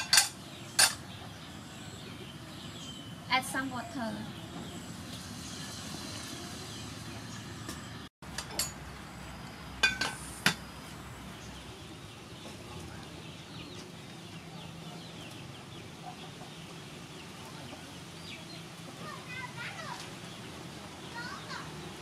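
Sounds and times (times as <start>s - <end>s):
metal spoon clinking cookware: 0.0s - 1.0s, 8.3s - 8.8s, 9.8s - 10.6s.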